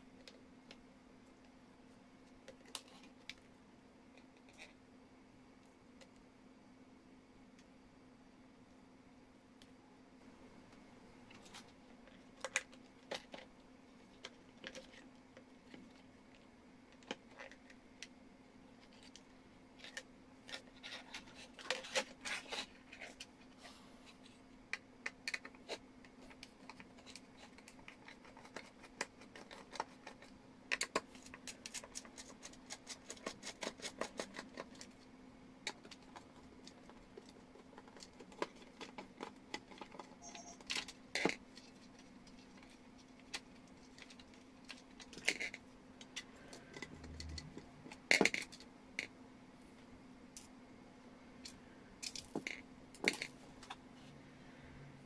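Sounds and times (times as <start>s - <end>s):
plastic parts clicking and tapping: 24.7s - 34.9s, 35.6s - 49.1s.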